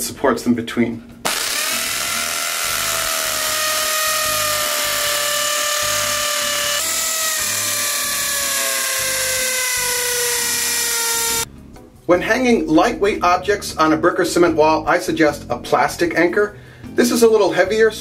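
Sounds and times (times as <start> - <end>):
hammer drill drilling into brick: 1.3 - 11.5.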